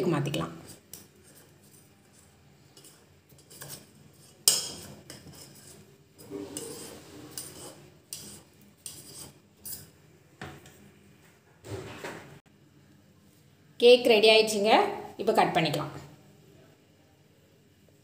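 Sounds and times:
knife scraping metal pot: 0.6s - 10.0s.

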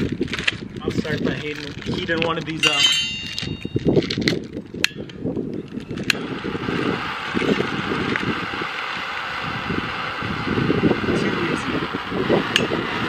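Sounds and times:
flame hissing: 5.9s - 13.0s.

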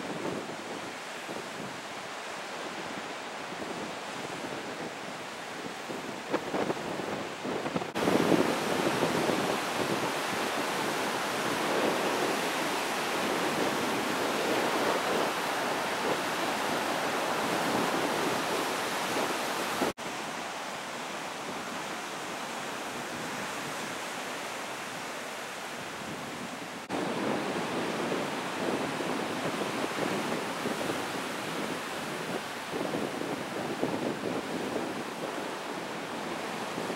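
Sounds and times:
heavy surf breaking on rocks: 2.8s - 20.2s, 25.7s - 36.9s.

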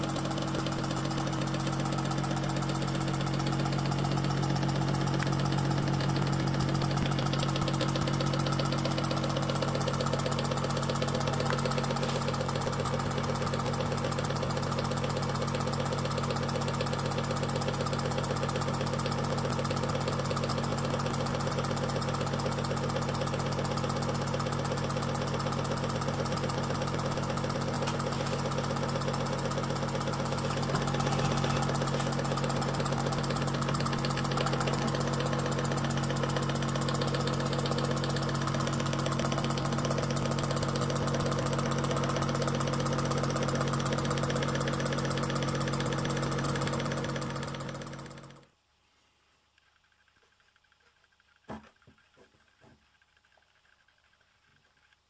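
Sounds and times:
steady hum: 0.0s - 16.6s, 25.9s - 42.0s
model steam engine exhaust beats: 0.0s - 48.5s.

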